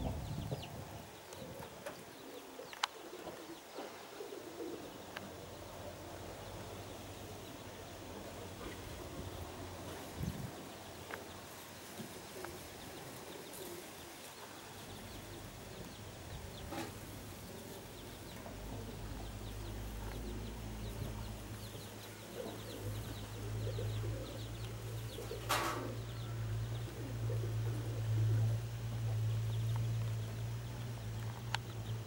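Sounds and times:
pigeons cooing: 0.0s - 11.4s, 12.0s - 31.2s
low steady hum: 0.0s - 32.0s.

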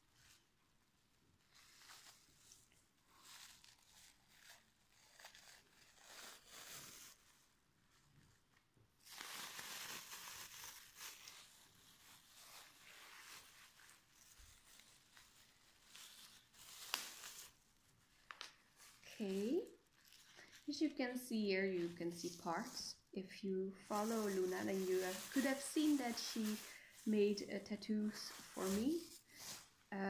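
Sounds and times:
plastic bags crinkling: 9.0s - 23.1s, 23.7s - 30.0s.

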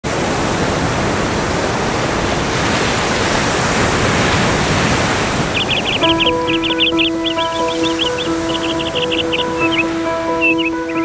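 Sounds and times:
surf breaking on shore: 0.1s - 11.0s
high chirps: 5.5s - 11.0s.

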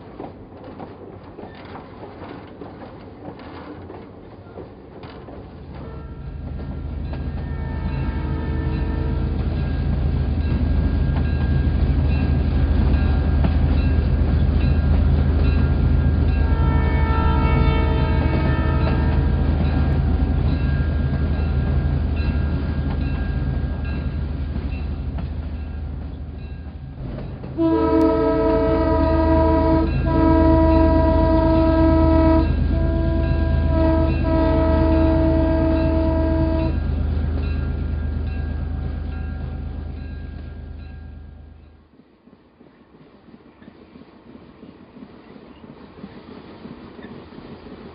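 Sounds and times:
locomotive engine rumble: 5.3s - 41.8s
train horn blasts: 5.8s - 6.5s, 7.2s - 9.4s, 16.4s - 20.1s, 27.6s - 37.0s.

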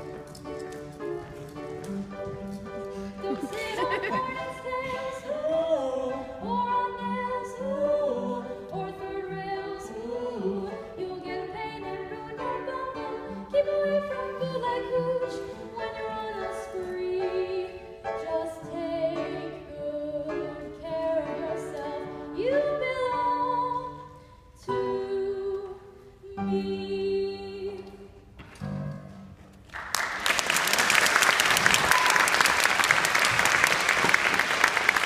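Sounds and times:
singing with instrumental accompaniment: 2.8s - 29.0s
audience applause: 29.7s - 35.0s.

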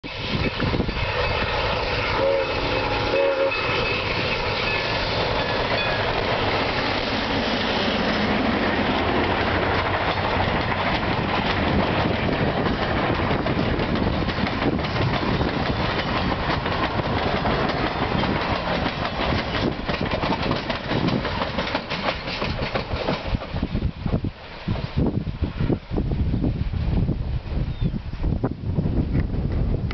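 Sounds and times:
steam locomotive whistle: 0.0s - 6.2s
steel wheels rumbling on rail: 0.0s - 29.9s
train cars clickety-clack: 0.2s - 25.0s.

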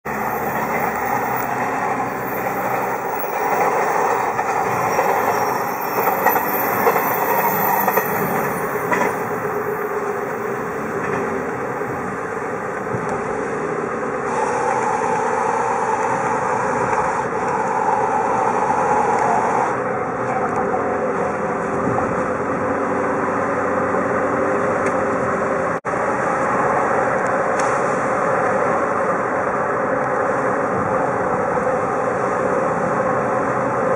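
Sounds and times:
car tyre and engine rumble: 0.0s - 33.9s.

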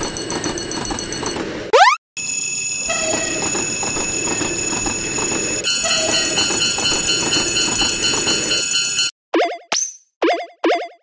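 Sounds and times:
railroad crossing bells ringing: 2.2s - 9.1s.

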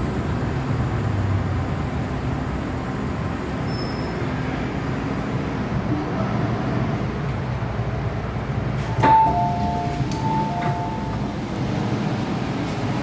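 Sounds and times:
train rumble and hum: 0.0s - 13.0s
two-note door chime: 9.0s - 11.3s.

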